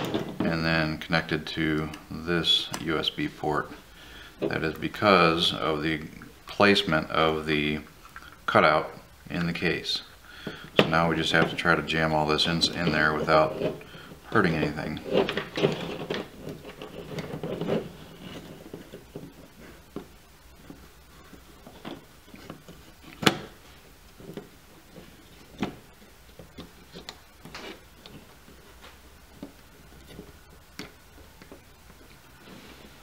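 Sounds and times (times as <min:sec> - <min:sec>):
rustling and handling: 0:10.4 - 0:33.0.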